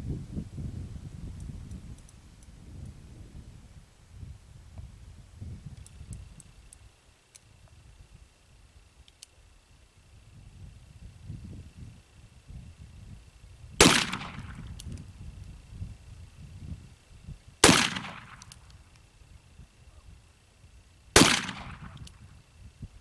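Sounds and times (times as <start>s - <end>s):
revolver shots cracking: 13.8s - 14.8s, 17.6s - 18.6s, 21.2s - 22.1s.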